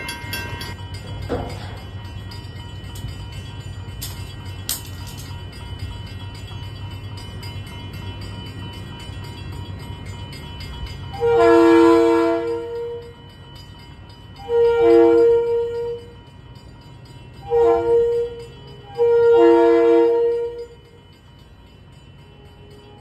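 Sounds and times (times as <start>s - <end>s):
train air horn blasts: 11.2s - 13.0s, 14.4s - 16.0s, 17.5s - 18.3s, 19.0s - 20.6s.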